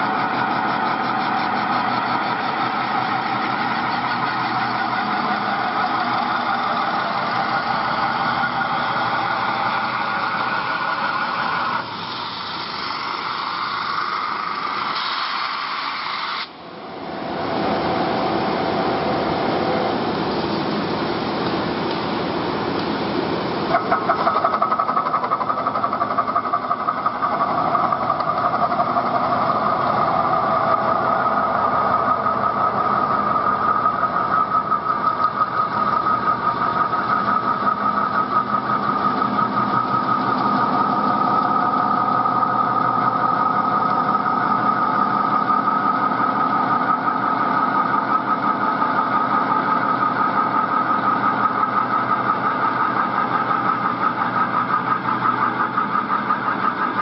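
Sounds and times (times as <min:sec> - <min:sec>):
constant ringing tone: 0:00.0 - 0:11.4, 0:24.5 - 0:57.0
metal spinning machine drone: 0:00.0 - 0:57.0.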